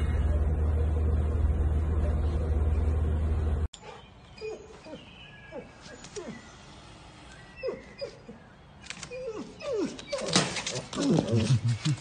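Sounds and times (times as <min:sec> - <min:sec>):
dog whimpering: 0:09.1 - 0:11.6.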